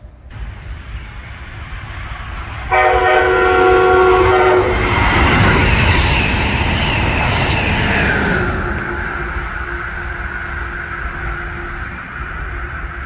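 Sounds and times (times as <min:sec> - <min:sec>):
train rushing past: 0:00.0 - 0:13.0
train horn chord: 0:02.7 - 0:04.9.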